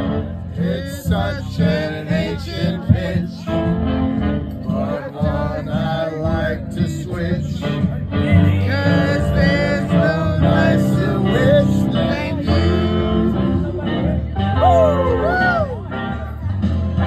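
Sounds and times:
loud backing music: 0:00.0 - 0:17.0
men singing into a microphone: 0:00.5 - 0:03.8, 0:04.6 - 0:14.1.

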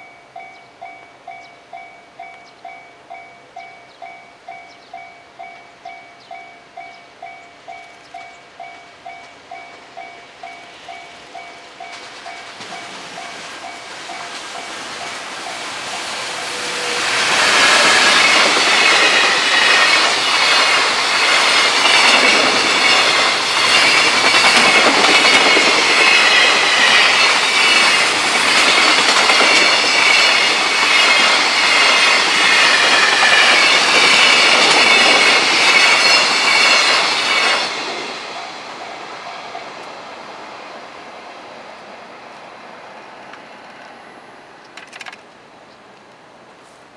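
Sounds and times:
level-crossing bell: 0:00.0 - 0:16.8
train wheels clattering and squealing: 0:09.1 - 0:39.7.

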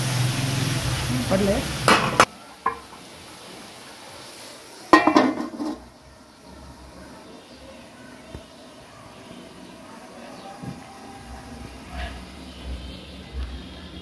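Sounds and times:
oil sizzling: 0:00.0 - 0:14.0
metal lid clattering: 0:04.9 - 0:05.8.

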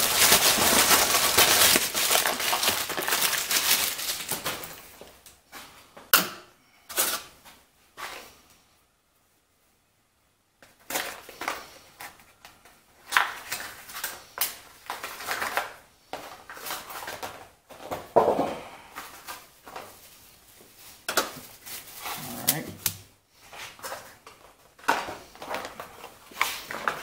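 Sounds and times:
packaging rustling and crinkling: 0:00.0 - 0:05.5, 0:10.6 - 0:18.1, 0:18.9 - 0:27.0.

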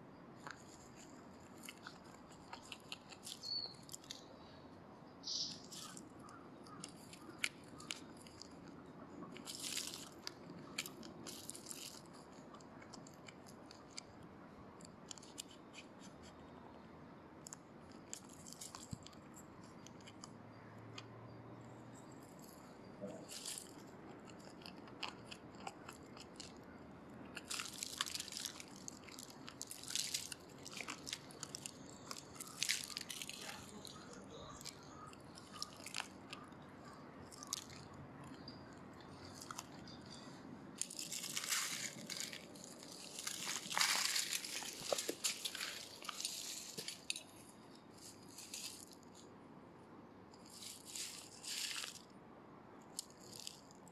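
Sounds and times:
rustling of dead leaves: 0:00.4 - 0:04.4, 0:05.2 - 0:14.0, 0:22.2 - 0:26.6, 0:27.2 - 0:37.8, 0:38.4 - 0:49.2, 0:50.4 - 0:52.1, 0:52.9 - 0:53.7.

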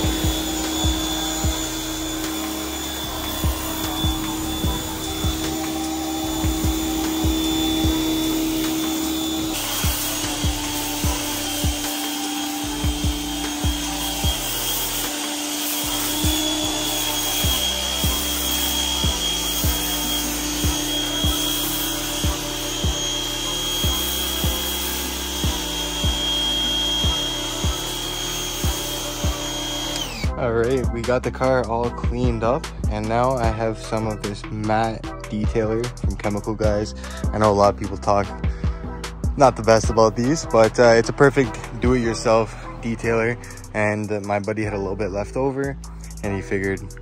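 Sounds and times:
pressure washer spray hiss: 0:00.0 - 0:30.1
pressure washer motor whine: 0:00.0 - 0:30.4
background music with steady beat: 0:00.0 - 0:47.0.

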